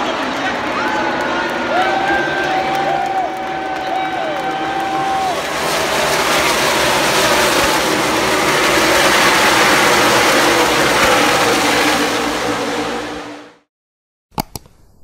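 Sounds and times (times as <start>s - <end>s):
racing car engines roaring past: 0.0s - 13.7s.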